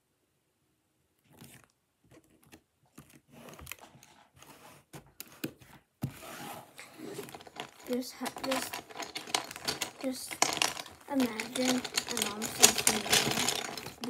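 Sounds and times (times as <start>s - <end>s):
plastic bricks clicking and rattling: 6.9s - 14.0s.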